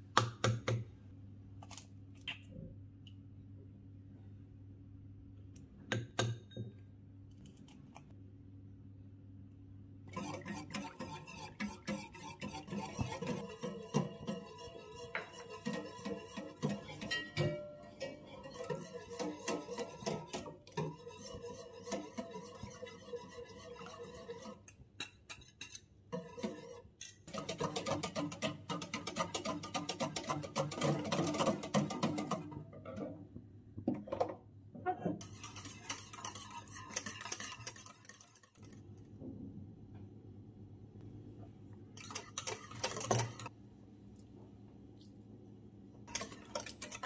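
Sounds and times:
whisk beating in a saucepan: 10.1s - 32.6s, 35.2s - 38.9s, 42.0s - 43.5s, 46.1s - 47.0s.

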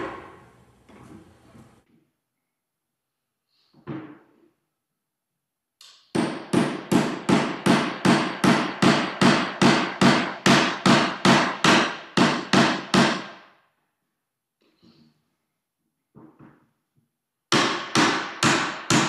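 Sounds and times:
hammer striking: 0.0s - 0.5s, 5.8s - 13.4s, 17.5s - 19.0s.

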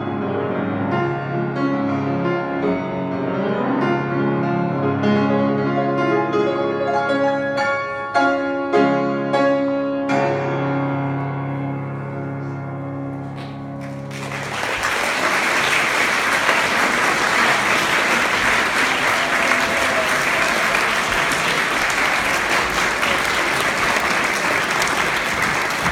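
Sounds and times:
grand piano chord: 0.0s - 14.7s
audience applauding: 13.4s - 25.9s.

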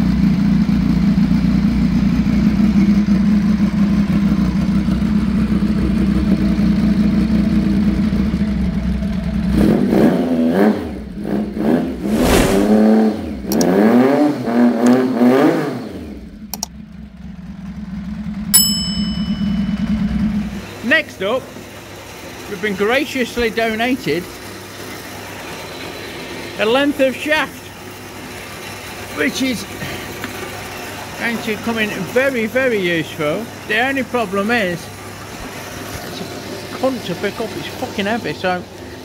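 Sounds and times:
motorcycle engine idling and revving: 0.0s - 12.1s, 12.7s - 39.0s
sharp click: 16.5s - 16.7s
short ringing ding: 18.5s - 20.5s.

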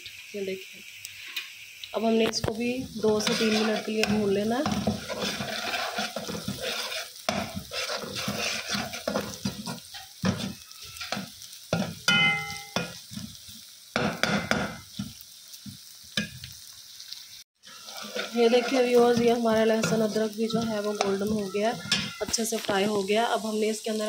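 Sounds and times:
onions sizzling in oil: 0.0s - 24.0s
spatula scraping metal pan: 2.8s - 13.3s, 17.6s - 22.5s
metal clink: 12.1s - 13.0s.

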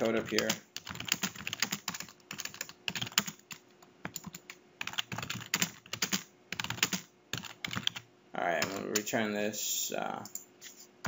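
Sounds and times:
typing on computer keyboard: 0.1s - 8.0s, 8.6s - 8.8s.

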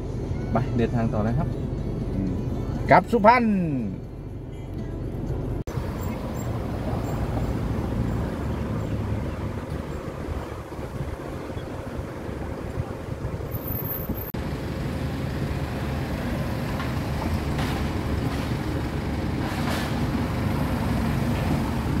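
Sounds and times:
passing traffic: 0.0s - 22.0s
wind rumbling on microphone: 5.7s - 14.4s.

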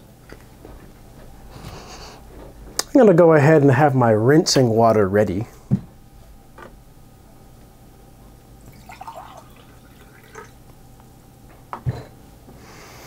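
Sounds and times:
water poured from glass bottle: 8.6s - 10.5s
water trickling and dripping: 8.7s - 10.6s.

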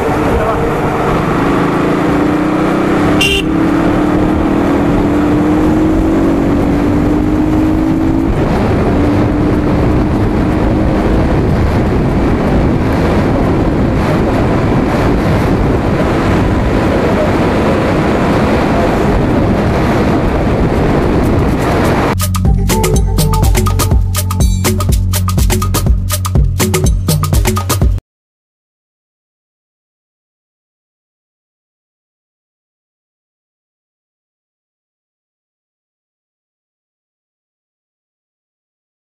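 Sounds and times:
wind noise on microphone: 0.0s - 22.2s
motorcycle engine running: 0.0s - 28.0s.

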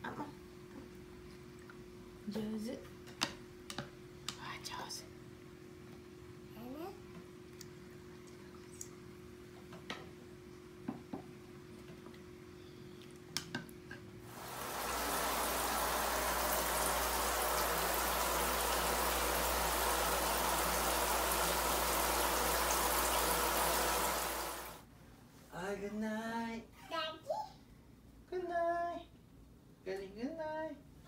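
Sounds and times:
shower water spraying into pool: 14.3s - 24.8s.

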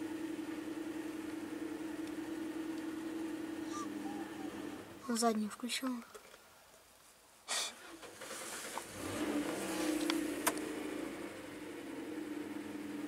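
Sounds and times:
car engine revving: 0.0s - 5.0s, 7.9s - 13.0s.

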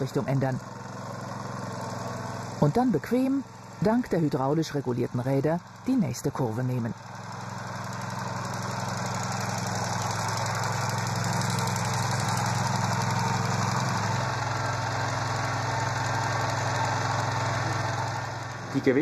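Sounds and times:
motor mower engine running: 0.0s - 19.0s.

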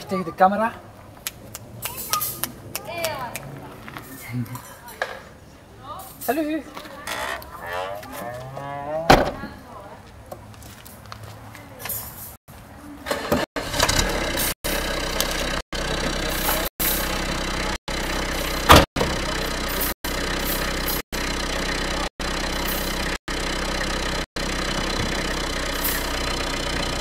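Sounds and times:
engine running: 13.1s - 27.0s.

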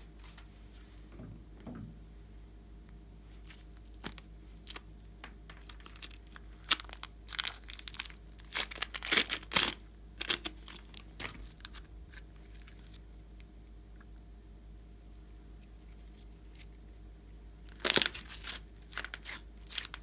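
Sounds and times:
plastic bag crinkling and tearing: 5.5s - 13.0s, 17.7s - 20.0s.

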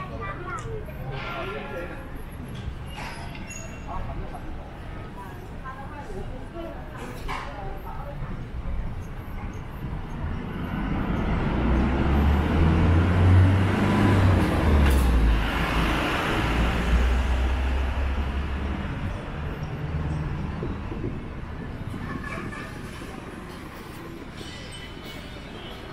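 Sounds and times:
vehicle passing: 10.4s - 20.2s.

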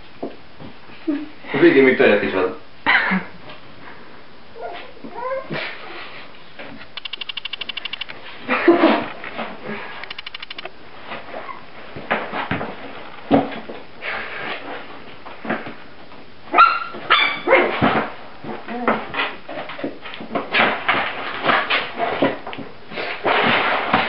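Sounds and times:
puppy yelps: 16.5s - 17.7s.

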